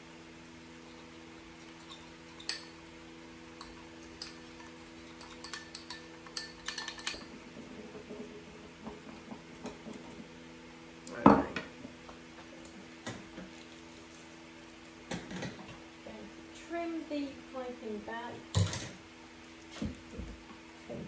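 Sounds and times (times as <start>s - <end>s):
steady low hum: 0.0s - 21.0s
spatula clinking on ceramic bowl: 1.6s - 2.9s, 3.6s - 7.2s.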